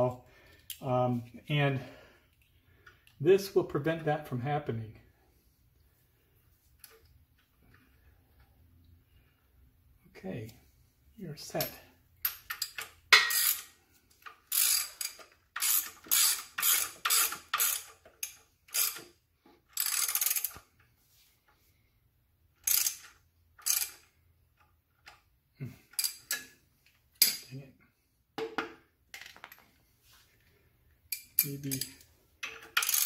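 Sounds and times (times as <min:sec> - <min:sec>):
socket ratchet clicking: 0:14.4 - 0:19.1, 0:22.6 - 0:24.0, 0:31.1 - 0:33.0.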